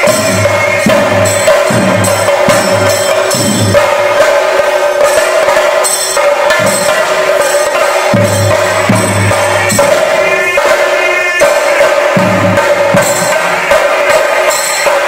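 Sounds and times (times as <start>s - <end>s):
deep drum strokes: 0.0s - 5.8s
drums beaten with sticks: 0.0s - 15.0s.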